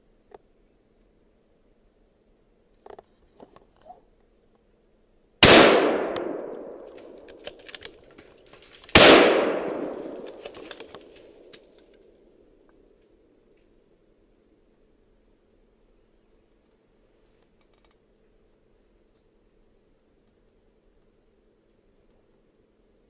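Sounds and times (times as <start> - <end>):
rifle shots echoing: 5.4 - 7.6, 8.9 - 11.5.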